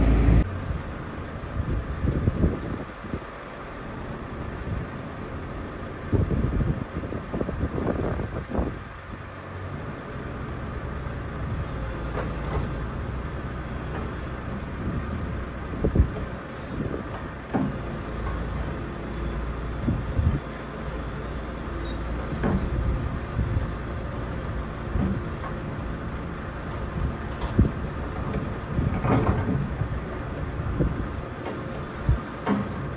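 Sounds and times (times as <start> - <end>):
excavator diesel engine running: 0.0 - 32.9
excavator bucket clanking: 16.9 - 19.3, 26.6 - 32.9.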